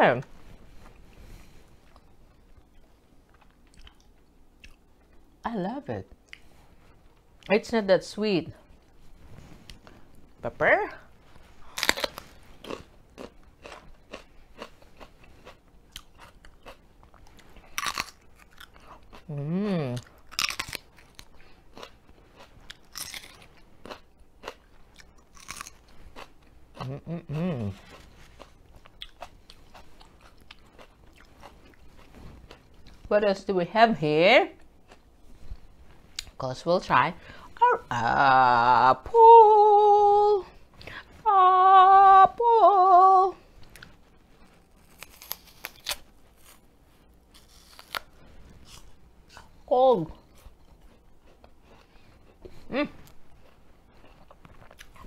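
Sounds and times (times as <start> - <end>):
crunchy chewing: 11.6 - 19.4, 20.0 - 33.0, 43.6 - 46.7, 47.3 - 55.0
crunching bite into pepper: 11.8 - 14.7.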